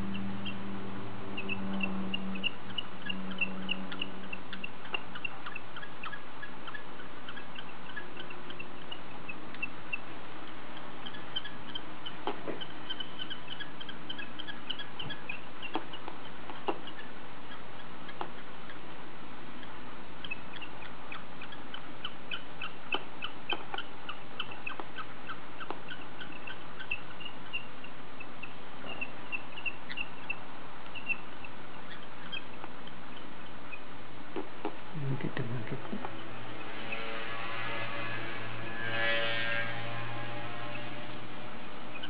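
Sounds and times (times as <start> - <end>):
high-pitched chirping: 0.0 - 19.0, 19.6 - 33.9.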